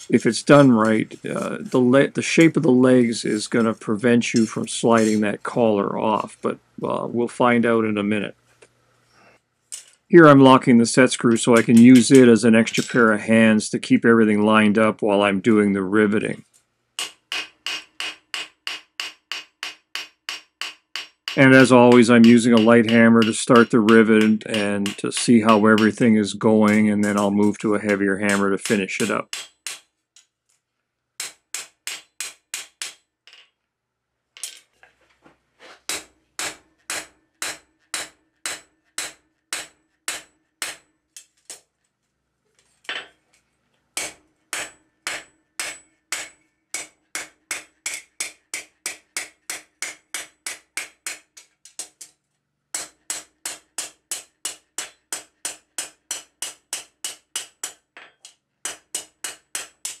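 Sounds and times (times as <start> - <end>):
hammer ringing on anvil: 17.0 - 26.1.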